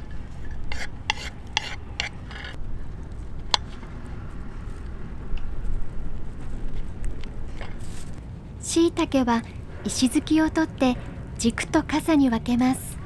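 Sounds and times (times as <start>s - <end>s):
knife slicing garlic on a board: 0.7s - 2.2s.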